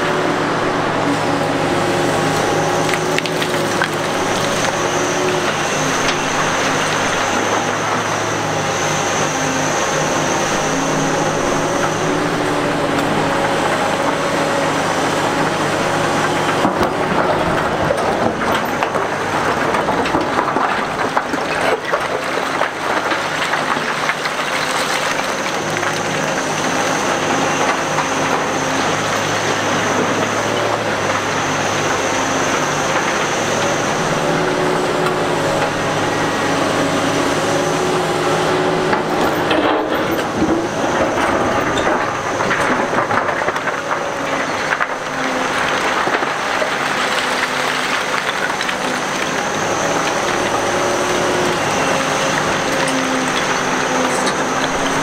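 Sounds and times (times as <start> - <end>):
excavator diesel engine: 0.0 - 55.0
rock clattering and scraping: 2.4 - 7.8.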